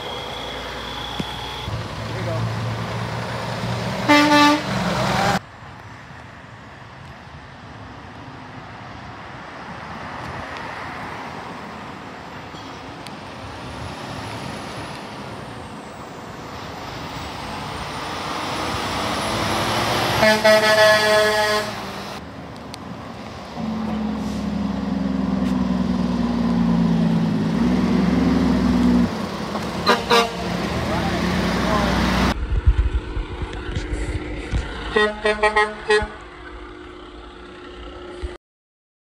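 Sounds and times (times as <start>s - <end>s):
passing traffic noise: 0.0s - 38.4s
truck air horn blast: 4.0s - 5.4s, 20.1s - 22.2s, 29.8s - 30.6s, 34.9s - 36.3s.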